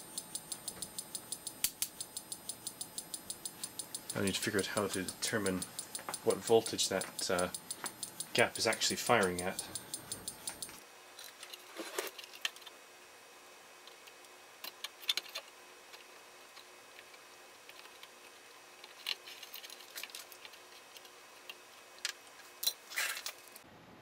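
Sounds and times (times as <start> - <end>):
light clicks and taps: 0.1 - 10.8.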